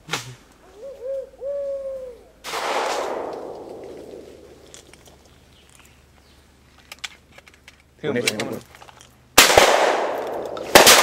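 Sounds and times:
gunshot with echo: 2.5 - 4.2, 9.4 - 11.0.

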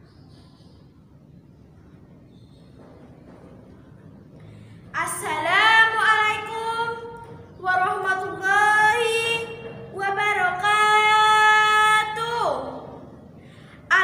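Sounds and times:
girl singing: 5.0 - 12.8.

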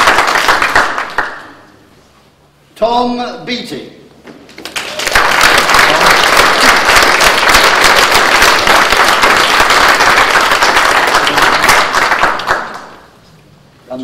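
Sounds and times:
audience applauding: 0.0 - 1.6, 4.6 - 13.1.

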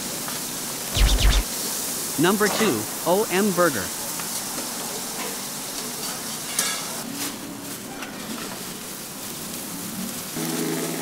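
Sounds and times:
brief sharp sound: 1.0 - 1.5
onions sizzling on a griddle: 6.2 - 11.0.

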